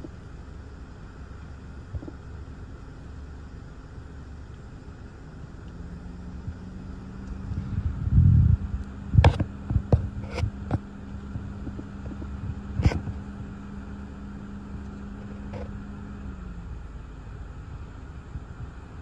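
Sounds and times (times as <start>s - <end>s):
steady low hum: 0.0s - 19.0s
wind buffeting microphone: 6.3s - 14.1s.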